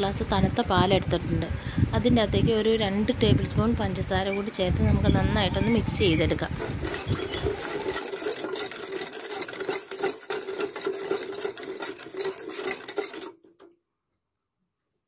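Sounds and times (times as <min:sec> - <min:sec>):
utensil stirring in steel pot: 0:04.2 - 0:13.7.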